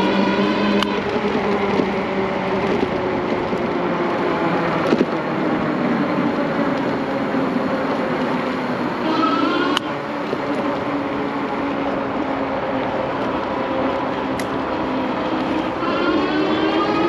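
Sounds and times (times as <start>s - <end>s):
wind rushing over microphone: 0.0s - 17.0s
electric motor whine: 8.9s - 10.8s, 13.6s - 17.0s.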